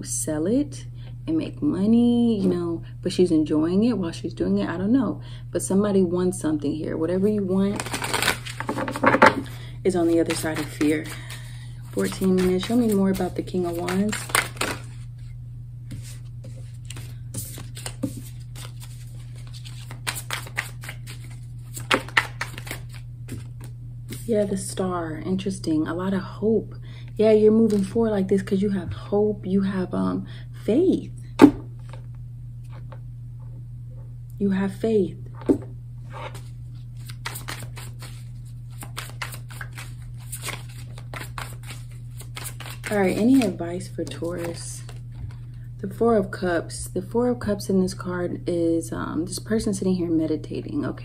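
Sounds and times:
steady low hum: 0:00.0 - 0:51.0
cards being shuffled: 0:07.7 - 0:15.1, 0:15.9 - 0:24.3, 0:35.4 - 0:45.4.

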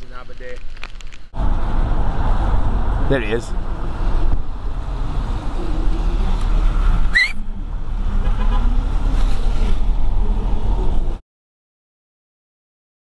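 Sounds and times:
van engine and road rumble: 0:00.0 - 0:11.2
rising chirp: 0:07.1 - 0:07.4.

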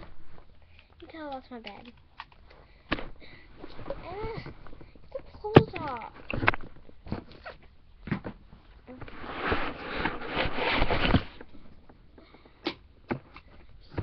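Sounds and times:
knocking of handled objects: 0:00.0 - 0:07.4
rustling of handled objects: 0:00.0 - 0:14.0.

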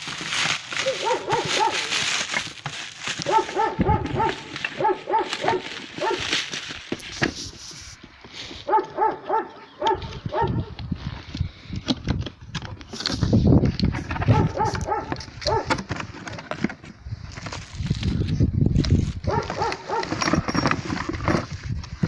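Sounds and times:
plastic wrap crinkling: 0:00.0 - 0:08.0
small dog yapping: 0:00.8 - 0:01.9, 0:03.2 - 0:06.2.

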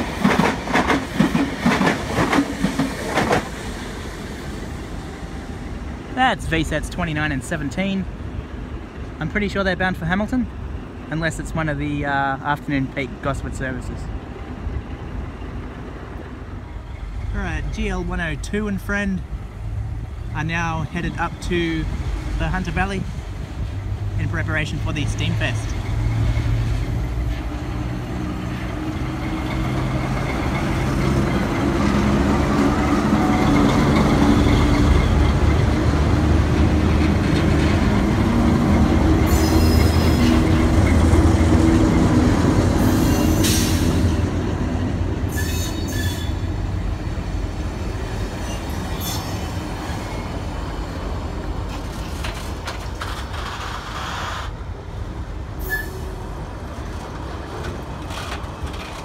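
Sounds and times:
diesel locomotive engines: 0:00.0 - 0:59.0
train wheels squealing: 0:33.2 - 0:35.6, 0:38.7 - 0:40.4, 0:42.8 - 0:44.1, 0:45.3 - 0:46.4, 0:48.3 - 0:50.4, 0:55.6 - 0:56.2.

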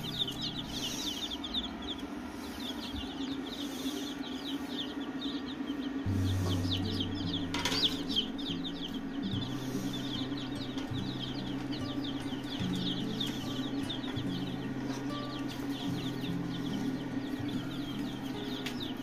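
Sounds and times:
chicks peeping: 0:00.0 - 0:19.0
background music with low bass: 0:06.0 - 0:19.0.

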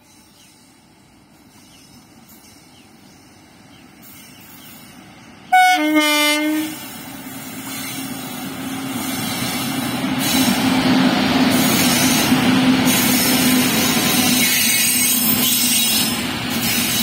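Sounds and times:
train horn blast: 0:05.5 - 0:06.9.

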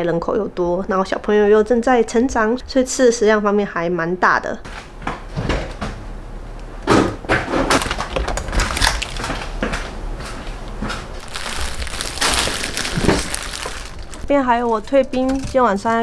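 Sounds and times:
plastic bags crinkling: 0:07.8 - 0:09.6, 0:11.0 - 0:14.3.

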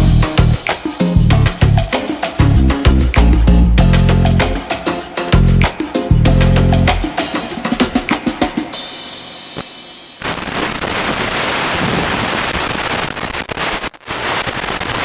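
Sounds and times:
drum-heavy music: 0:00.0 - 0:10.2
loud video static hiss: 0:00.0 - 0:15.0.

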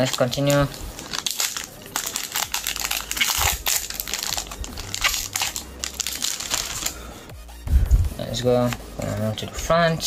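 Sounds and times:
foil wrapper crinkling: 0:00.0 - 0:07.1.

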